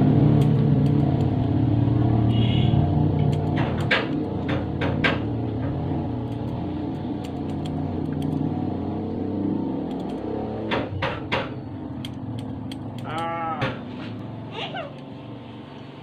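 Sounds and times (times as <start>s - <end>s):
scissors snipping hair: 0.3s - 1.3s, 3.2s - 4.3s, 6.2s - 8.5s, 12.0s - 13.6s.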